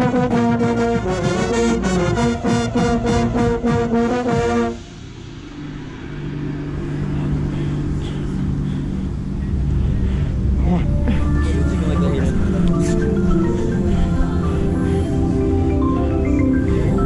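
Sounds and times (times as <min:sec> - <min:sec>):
brass line playing loud chords: 0:00.0 - 0:05.2
percussion strikes: 0:00.0 - 0:08.2
low steady tone: 0:02.8 - 0:17.0.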